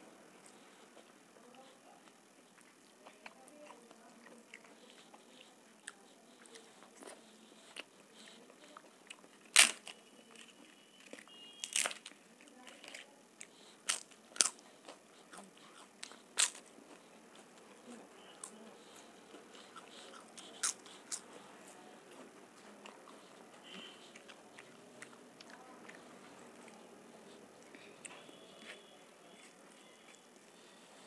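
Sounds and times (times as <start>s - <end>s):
crisp wafer snapping and bitten: 9.5s - 10.0s, 11.6s - 12.2s, 13.8s - 14.6s, 16.0s - 16.6s.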